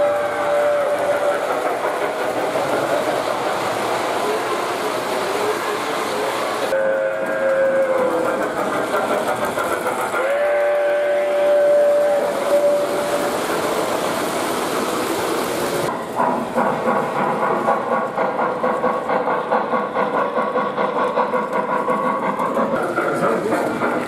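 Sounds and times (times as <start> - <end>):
steam whistle blowing: 0.0 - 1.4, 6.7 - 8.2, 10.2 - 13.9
rhythmic steam chuffing: 0.0 - 24.0
running train noise: 0.0 - 24.0
wheels clattering on track: 0.0 - 24.0.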